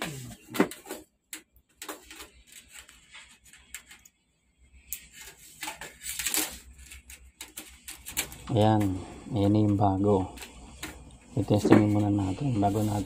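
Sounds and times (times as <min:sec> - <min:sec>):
metal strips clicking and scraping: 0:04.9 - 0:08.5.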